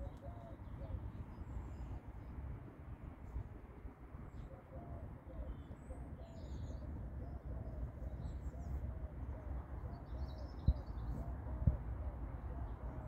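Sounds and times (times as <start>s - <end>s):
faint bird chirps: 9.8s - 11.9s
wind on microphone: 10.6s - 12.0s.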